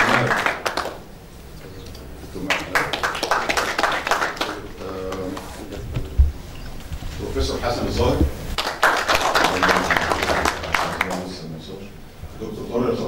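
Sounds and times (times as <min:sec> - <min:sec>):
scattered claps: 0:00.0 - 0:01.0, 0:02.4 - 0:05.5, 0:08.6 - 0:11.4
audience applauding: 0:00.0 - 0:01.1, 0:02.4 - 0:05.6, 0:08.6 - 0:11.5
voices: 0:09.1 - 0:13.0.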